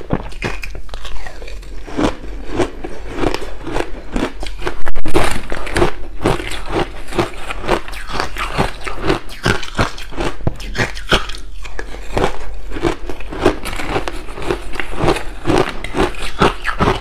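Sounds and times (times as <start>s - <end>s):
crunching and chewing ice: 0.0s - 17.0s.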